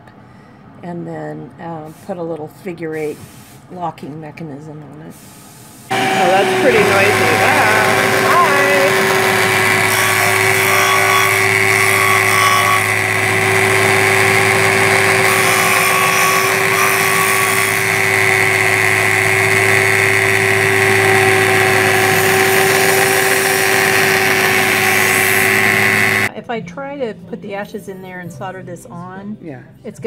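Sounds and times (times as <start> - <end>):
metal grinding hiss: 5.2 - 26.3
sander motor hum: 5.9 - 26.3.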